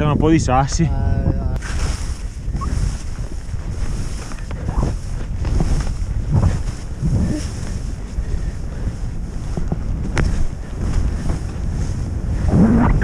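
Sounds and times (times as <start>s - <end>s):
wind rumbling on microphone: 0.0s - 13.0s
skis hissing through snow: 1.6s - 3.2s
ski swishes: 1.6s - 7.8s.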